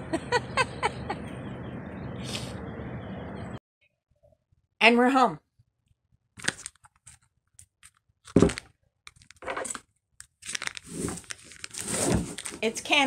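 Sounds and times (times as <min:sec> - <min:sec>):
wrapping rustling and tearing: 0:10.4 - 0:12.7.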